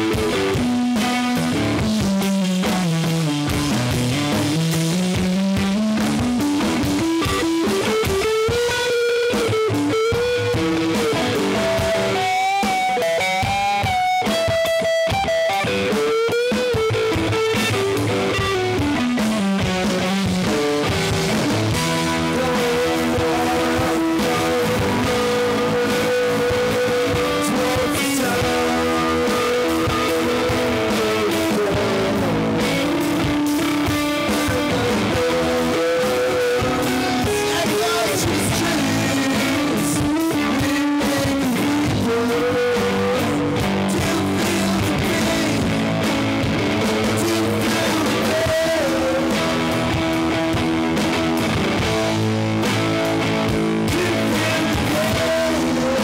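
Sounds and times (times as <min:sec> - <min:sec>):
drum kit: 0:00.0 - 0:56.0
electric guitar strumming: 0:00.0 - 0:56.0
man singing into microphone: 0:21.8 - 0:50.1, 0:53.8 - 0:56.0.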